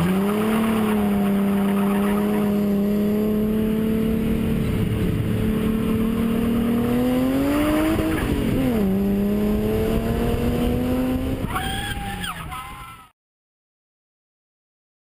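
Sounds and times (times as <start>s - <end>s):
car engine revving: 0.0s - 11.8s.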